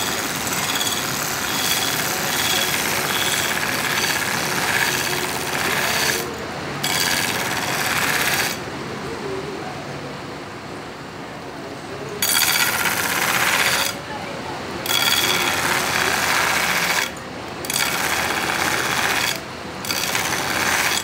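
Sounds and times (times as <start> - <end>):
belt grinder running: 0.0 - 8.6, 12.2 - 14.0, 14.8 - 21.0
knife blade grinding on belt: 0.0 - 8.6, 12.2 - 14.0, 14.9 - 17.1, 17.7 - 21.0.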